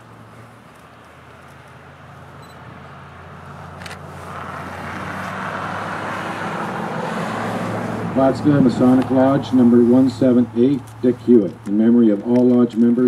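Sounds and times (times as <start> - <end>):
car approaching on road: 0.0 - 13.0.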